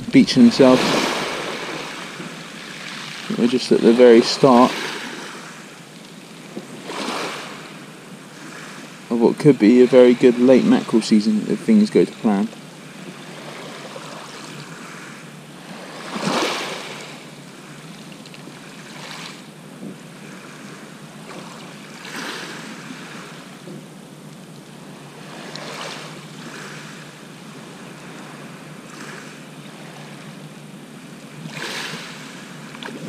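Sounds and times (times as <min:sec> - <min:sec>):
small waves breaking on shore: 0:00.0 - 0:33.0.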